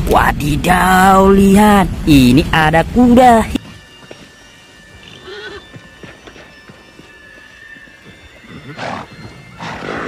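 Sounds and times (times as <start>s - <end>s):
horse snorting: 8.5s - 10.0s.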